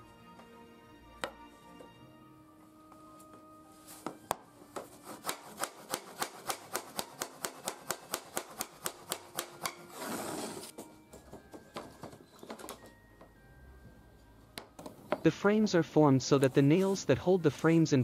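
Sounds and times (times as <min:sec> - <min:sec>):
hammer tapping on wooden frame: 0:04.0 - 0:09.8.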